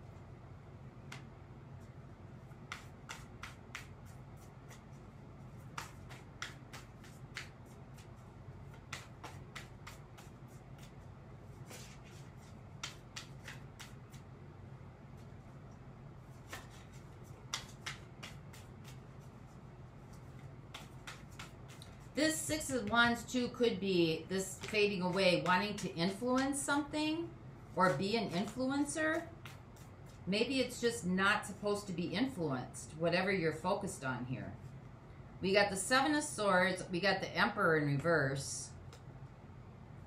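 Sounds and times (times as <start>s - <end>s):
faint low hum: 0.0s - 40.0s
cards being shuffled: 2.5s - 14.4s, 16.2s - 23.4s, 24.2s - 26.7s, 27.7s - 30.3s.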